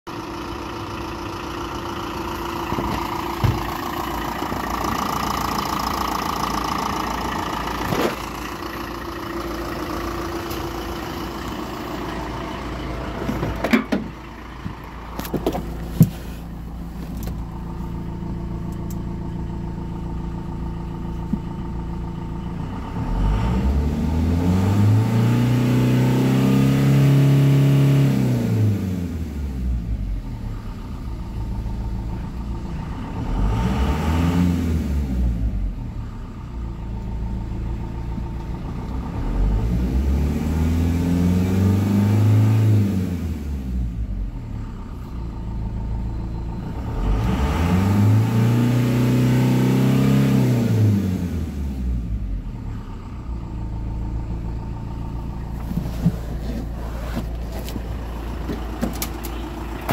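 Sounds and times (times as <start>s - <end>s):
diesel engine idling: 0.1s - 59.9s
sharp engine knocks: 2.7s - 3.9s, 13.2s - 16.3s
engine revving: 22.6s - 37.9s, 38.7s - 59.9s.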